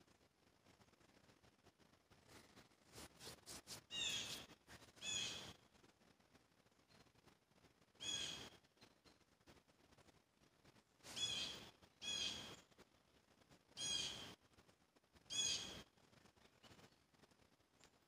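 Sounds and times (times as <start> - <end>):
bird calling: 3.9 - 5.5, 8.0 - 8.5, 11.1 - 12.6.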